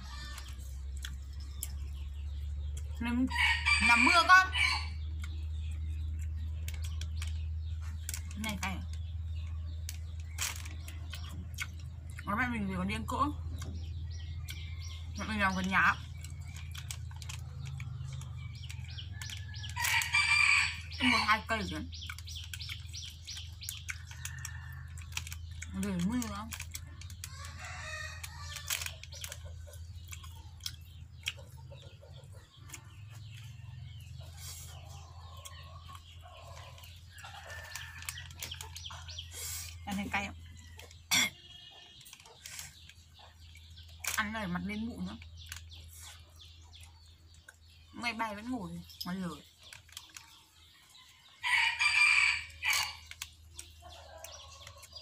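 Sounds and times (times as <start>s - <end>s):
person chewing crunchy snack: 0.0s - 2.9s, 16.0s - 20.9s, 22.0s - 31.6s, 34.2s - 39.8s
chickens clucking: 13.4s - 44.4s, 45.0s - 55.0s
rooster crowing: 51.4s - 53.0s.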